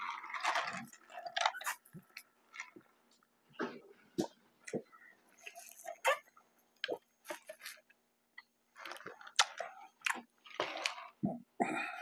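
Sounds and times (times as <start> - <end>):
slurping through a straw: 0.0 - 3.0.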